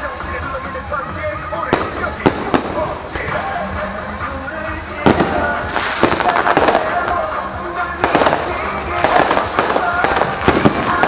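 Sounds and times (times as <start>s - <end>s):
background music: 0.0s - 11.0s
firework shells bursting: 5.0s - 7.3s.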